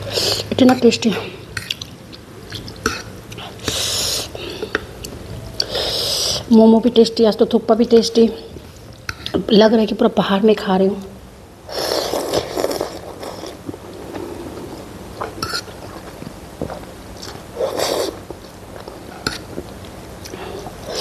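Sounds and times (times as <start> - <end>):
person slurping noodles: 11.7 - 14.8, 17.6 - 18.3
person chewing: 11.7 - 21.0.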